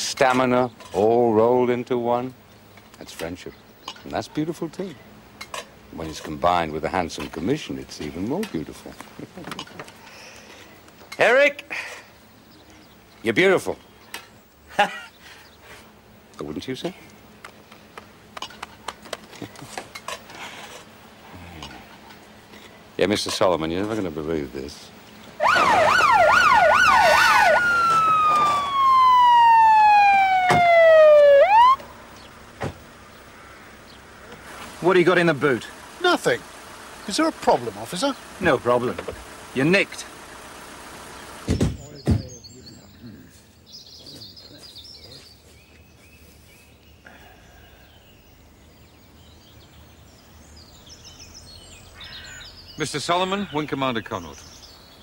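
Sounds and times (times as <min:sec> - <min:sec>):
faint birdsong: 0:00.0 - 0:55.0
police car siren: 0:25.4 - 0:32.0.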